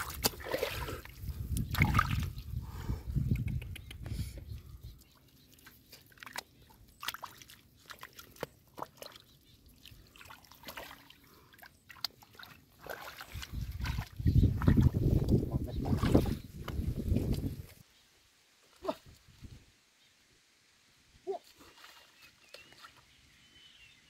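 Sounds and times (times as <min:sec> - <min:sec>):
small splashes in muddy water: 0:00.0 - 0:02.4, 0:05.2 - 0:17.6, 0:21.3 - 0:23.2.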